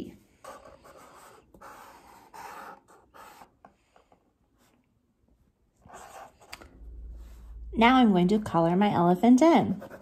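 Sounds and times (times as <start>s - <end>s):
marker scratching on paper: 0.0s - 4.7s, 5.8s - 6.6s, 9.6s - 10.0s
crayon rubbing on paper: 0.2s - 3.7s.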